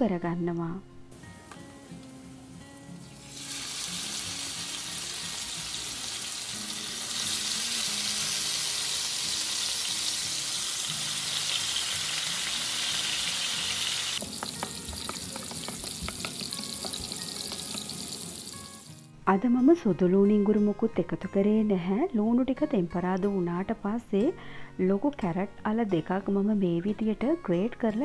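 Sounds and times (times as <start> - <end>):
onions sizzling in hot oil: 2.4 - 19.1.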